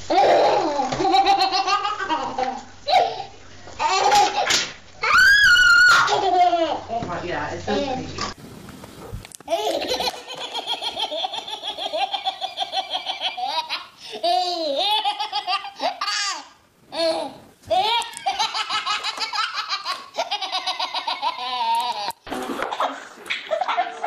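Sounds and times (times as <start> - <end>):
baby belly-laughing: 0.1 - 4.6, 9.5 - 24.0.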